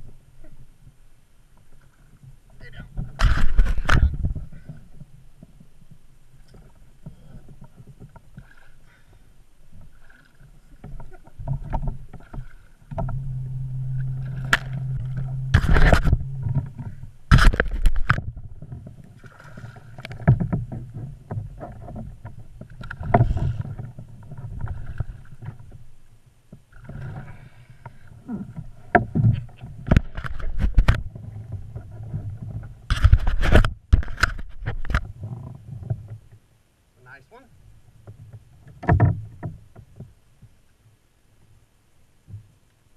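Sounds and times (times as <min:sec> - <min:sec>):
low rumble: 0:10.8 - 0:26.0.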